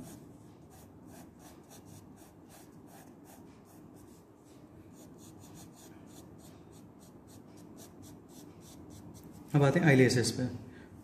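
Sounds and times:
pencil scratching on paper: 0:00.0 - 0:04.3, 0:04.9 - 0:09.4.

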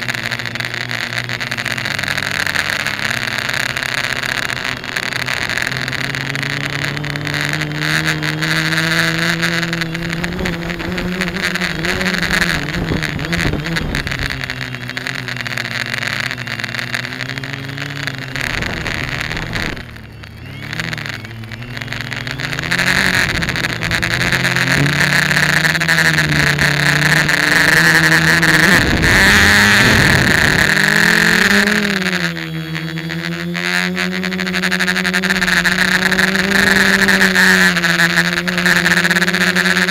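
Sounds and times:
quadcopter propellers buzzing: 0:00.0 - 0:39.9
wind buffeting microphone: 0:09.8 - 0:14.6, 0:18.3 - 0:30.8.

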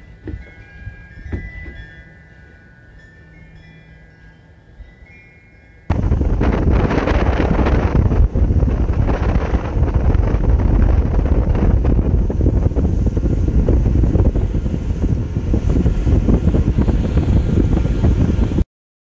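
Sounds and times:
boat engine rumble: 0:00.0 - 0:18.6
wind buffeting microphone: 0:04.8 - 0:18.6.

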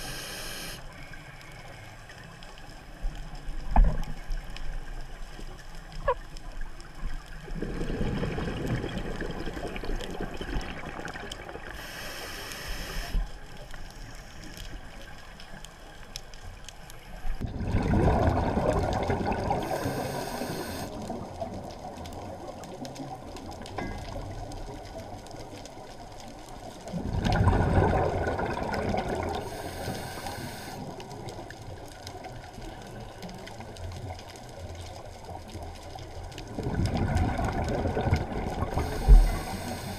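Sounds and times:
regulator hissing: 0:00.0 - 0:00.8, 0:11.8 - 0:13.2, 0:19.7 - 0:20.9, 0:38.8 - 0:39.9
rumbling bubbles underwater: 0:03.0 - 0:11.8, 0:17.3 - 0:29.9, 0:30.8 - 0:39.9.

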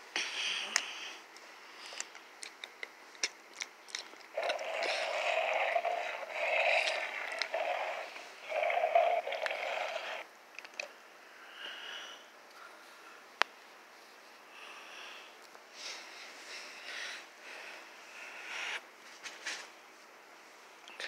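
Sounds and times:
breathy munching noises: 0:00.1 - 0:10.9
mouth clicks: 0:01.9 - 0:10.9.

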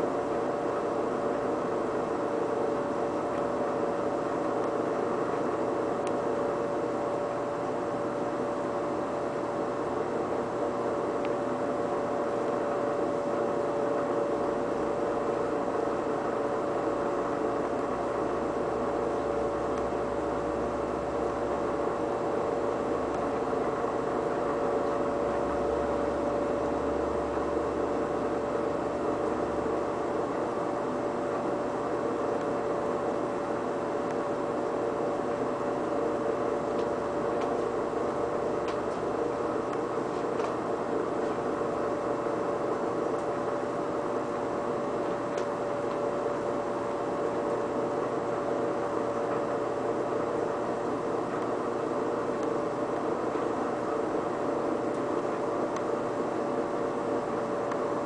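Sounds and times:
air conditioner hum: 0:00.0 - 0:58.0
electric fan whoosh: 0:00.0 - 0:58.0.

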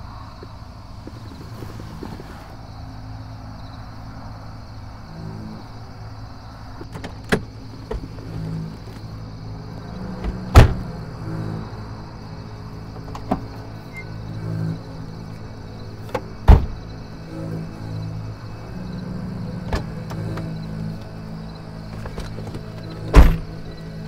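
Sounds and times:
low hum inside car: 0:00.0 - 0:24.0
car door shutting: 0:06.8 - 0:09.1, 0:10.1 - 0:11.6, 0:12.9 - 0:14.3, 0:16.0 - 0:17.7, 0:18.6 - 0:21.2, 0:21.9 - 0:23.8.

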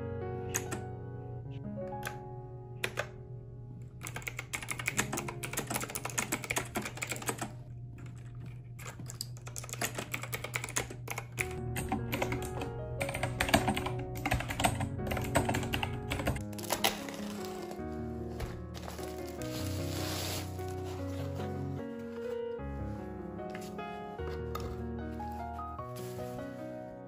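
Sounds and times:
background music: 0:00.0 - 0:08.4, 0:11.2 - 0:27.0
mechanical keyboard typing: 0:00.5 - 0:00.8, 0:02.8 - 0:03.1, 0:04.0 - 0:17.8.

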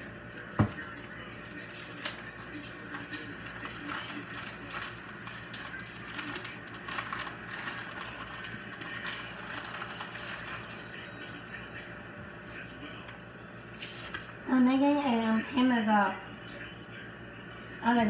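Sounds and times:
wrapper crinkling: 0:00.7 - 0:11.8.

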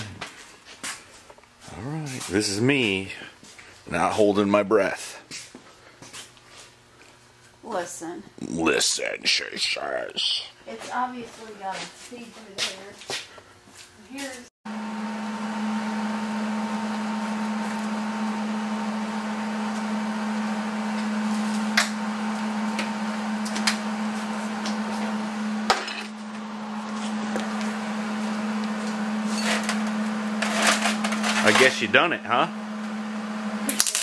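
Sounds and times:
wire-feed motor humming: 0:00.0 - 0:04.6, 0:13.3 - 0:34.0.

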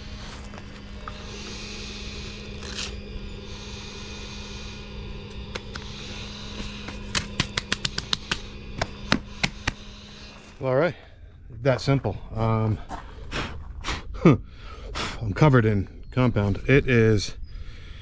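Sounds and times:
steady low hum: 0:00.0 - 0:18.0
sharp uneven taps: 0:06.6 - 0:09.8.

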